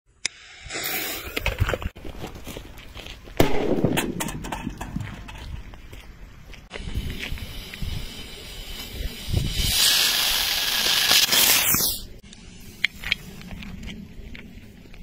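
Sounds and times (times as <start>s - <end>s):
rumble: 1.4s - 9.6s, 12.1s - 15.0s
firecracker bang: 3.4s - 5.0s
fuse hissing: 6.7s - 12.8s.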